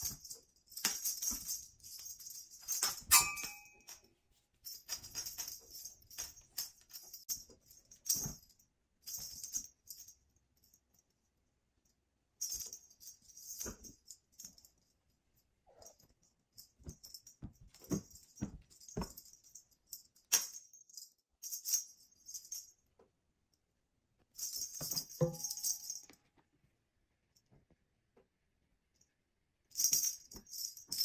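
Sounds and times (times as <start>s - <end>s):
cat toy rattling and jingling: 0.0s - 4.0s, 4.6s - 10.2s.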